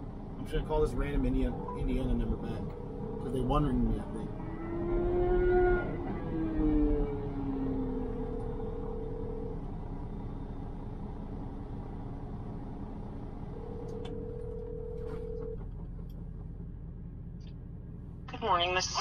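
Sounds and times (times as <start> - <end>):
low rumble: 0.0 - 19.0
telephone ringback tone: 13.7 - 15.6.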